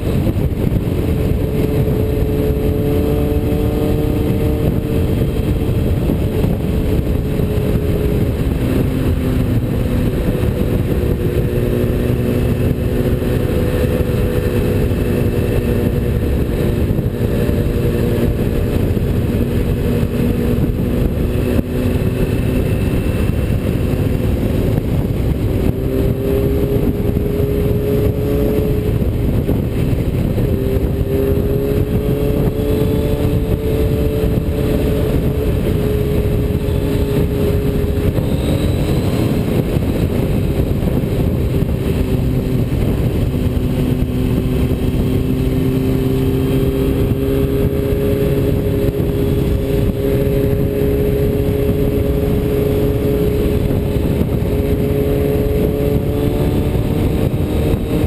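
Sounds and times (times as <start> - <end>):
vehicle engine running: 0.0 - 58.0
wind and road noise: 0.0 - 58.0.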